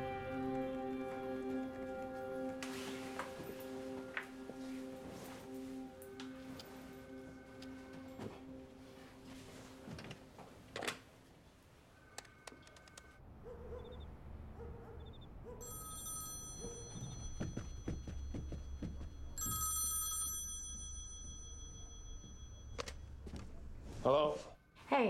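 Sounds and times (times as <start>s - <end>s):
footsteps: 0.5s - 10.7s, 16.6s - 19.8s, 22.2s - 24.6s
telephone bell ringing: 15.6s - 23.3s
faint trilling ring tone: 15.6s - 25.0s
phone dialling clicks and tones: 22.8s - 23.0s.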